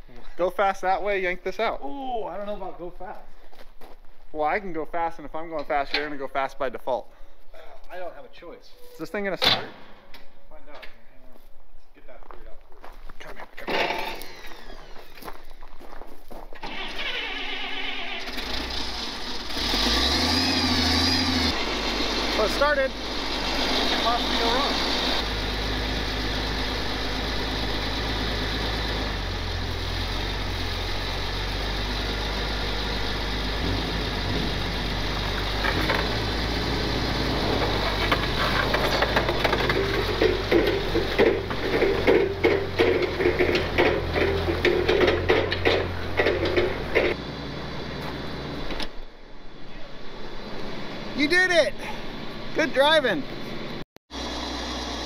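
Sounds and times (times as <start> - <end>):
forklift engine idling: 21.3 - 48.7.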